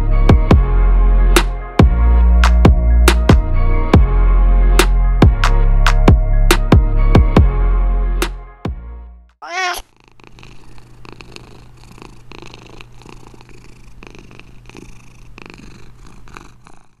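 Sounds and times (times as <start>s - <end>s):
background music: 0.0s - 9.3s
cat meowing: 9.4s - 9.9s
cat purring: 9.4s - 17.0s.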